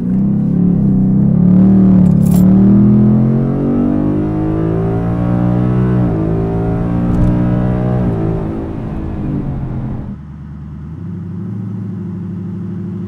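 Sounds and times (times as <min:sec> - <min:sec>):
car engine revving: 0:00.1 - 0:10.2.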